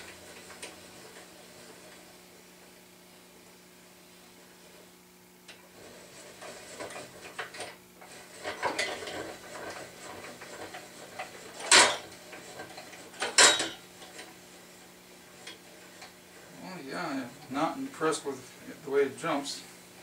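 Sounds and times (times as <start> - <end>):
crank gear clicking and rattling: 6.3 - 14.4.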